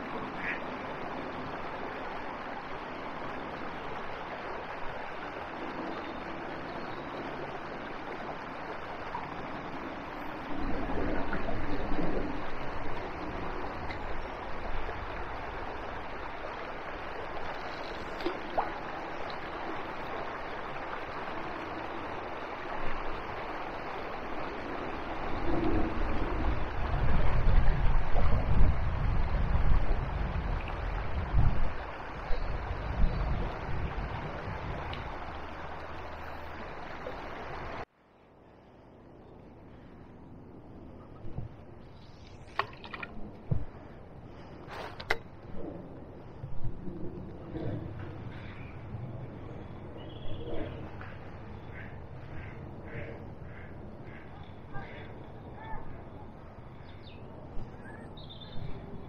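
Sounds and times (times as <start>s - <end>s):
wind rumbling on microphone: 0.0s - 37.9s, 38.5s - 59.0s
flowing river water: 0.0s - 46.4s.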